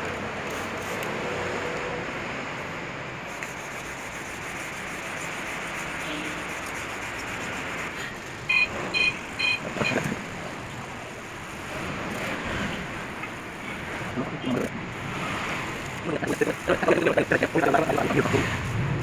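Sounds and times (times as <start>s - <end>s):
sponge pad rubbing metal: 3.3s - 8.2s
short loud beeps: 8.5s - 10.0s.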